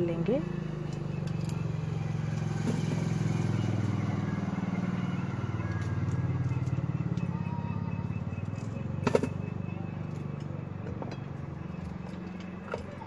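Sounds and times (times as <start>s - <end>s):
low motor hum: 0.0s - 13.0s.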